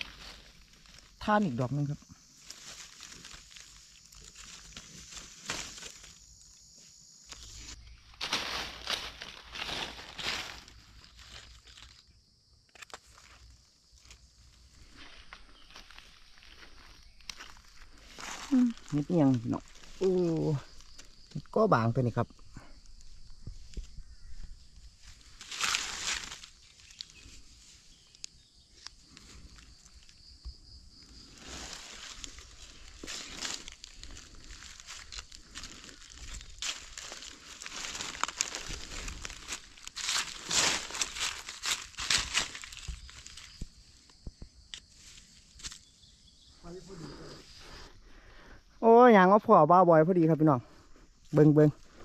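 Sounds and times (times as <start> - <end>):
leaf litter rustling: 0.0 - 12.0, 12.8 - 21.6, 24.9 - 28.2, 31.0 - 43.8.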